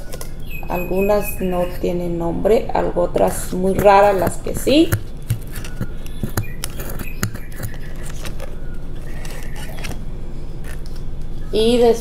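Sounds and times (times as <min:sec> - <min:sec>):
low background hum: 0:00.0 - 0:12.0
plastic pots clicking and scraping: 0:03.3 - 0:10.0.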